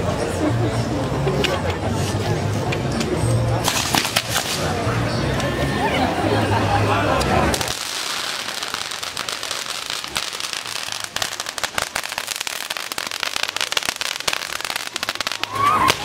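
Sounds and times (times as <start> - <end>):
firecrackers popping: 3.6 - 4.9, 7.4 - 16.0.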